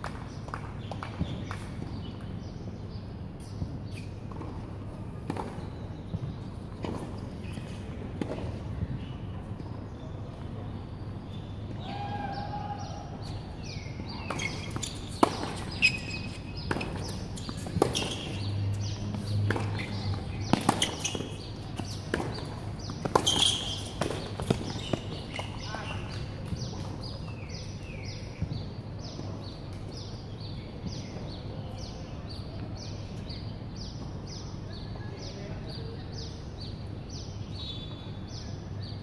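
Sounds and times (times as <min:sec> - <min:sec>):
tennis ball bouncing: 0:03.4 - 0:09.8, 0:13.6 - 0:27.7
tennis ball struck by racket: 0:14.2 - 0:26.8.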